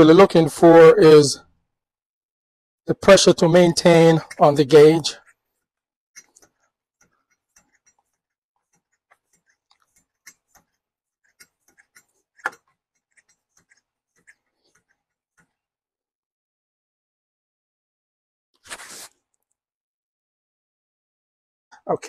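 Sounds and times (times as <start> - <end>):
faint clicks and taps: 6.2 - 15.6.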